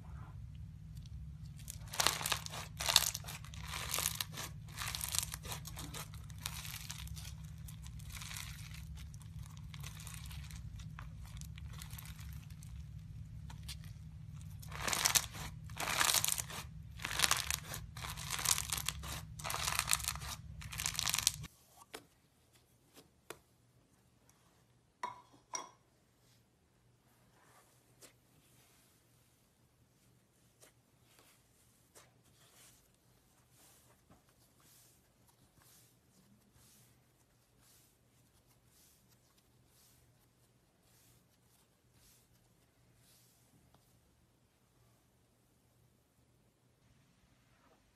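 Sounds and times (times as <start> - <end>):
slime crackling and crunching: 0.8 - 21.5.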